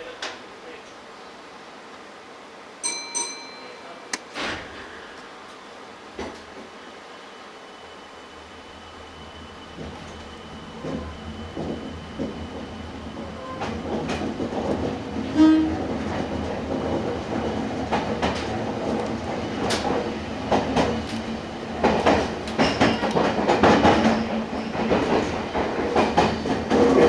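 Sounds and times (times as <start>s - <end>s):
train wheels clicking on rails: 9.7s - 27.0s.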